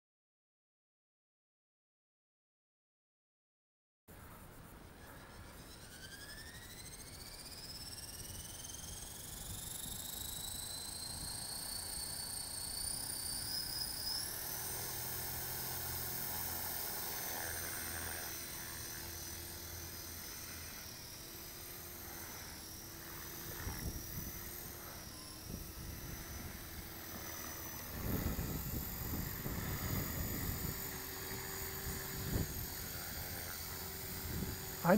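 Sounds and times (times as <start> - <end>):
electric motor whine: 5.0 - 34.9
rotor hum and beat: 12.4 - 34.9.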